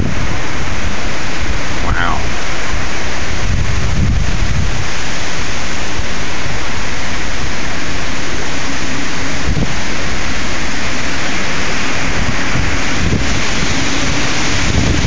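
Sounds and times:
strong wind rushing through trees: 0.0s - 15.0s
wind buffeting microphone: 0.0s - 15.0s.

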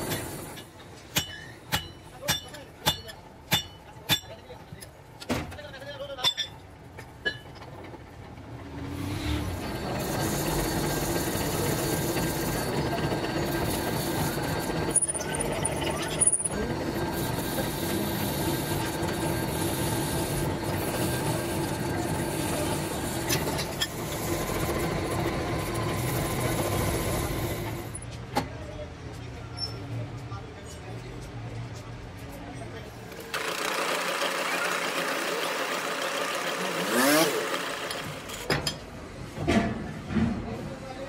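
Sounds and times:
drill bit grinding metal: 9.7s - 28.0s, 33.2s - 38.5s
drill motor hum: 33.1s - 38.5s.

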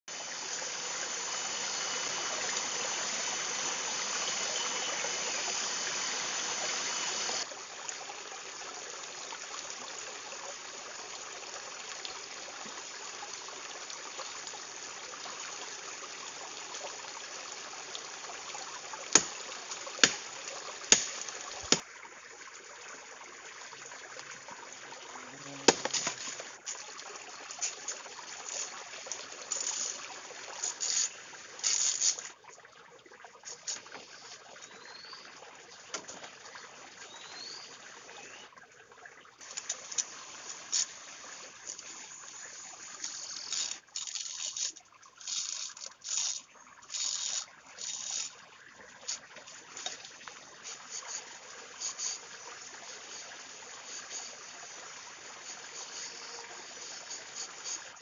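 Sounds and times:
stream rushing: 0.0s - 7.8s.

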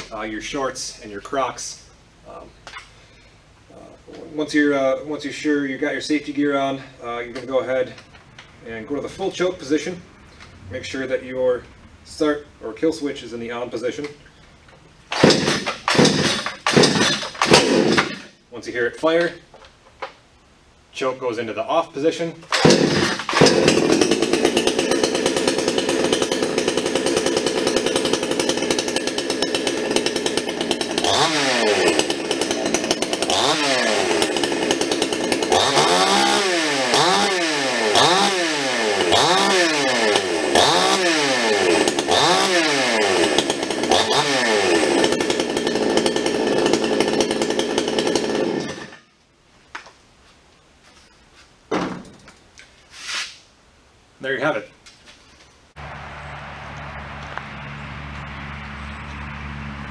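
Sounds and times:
chainsaw idling and revving: 15.1s - 18.4s, 22.5s - 49.1s, 55.8s - 59.9s.

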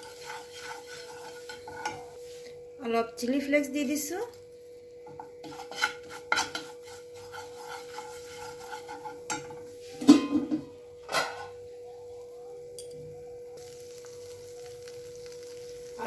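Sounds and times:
spoon scraping frying pan: 0.0s - 2.5s, 5.1s - 9.8s.

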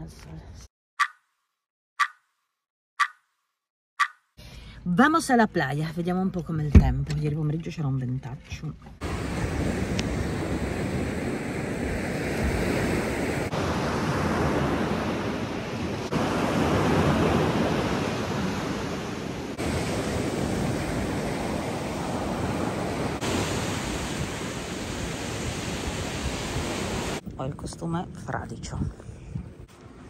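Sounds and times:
waves breaking on shore: 9.0s - 27.2s.

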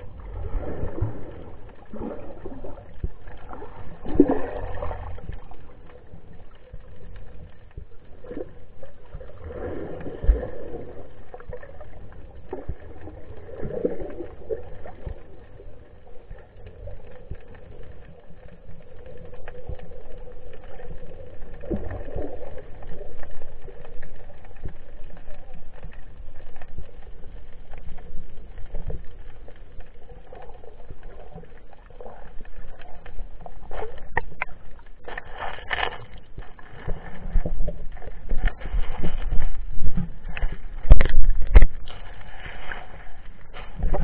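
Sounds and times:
swooshes of water: 0.0s - 5.9s
muffled underwater sloshing: 0.0s - 44.0s.

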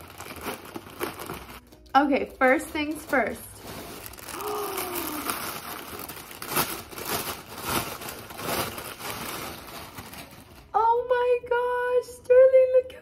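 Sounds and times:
plastic bag crinkling: 0.0s - 10.9s
person humming: 4.3s - 5.4s.

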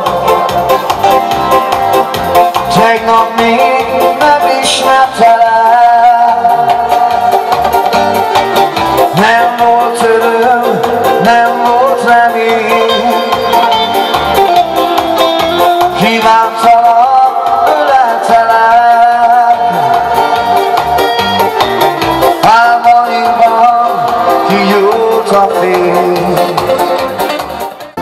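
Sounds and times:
band playing chords bass percussion: 0.0s - 28.0s
man singing into microphone: 2.4s - 8.0s, 9.0s - 14.0s, 15.6s - 21.2s, 22.2s - 27.3s.

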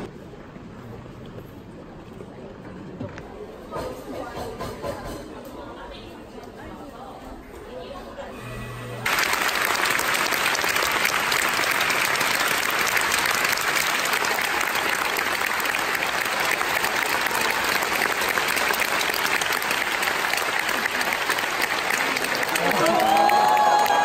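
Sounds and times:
audience applauding: 9.0s - 24.0s.

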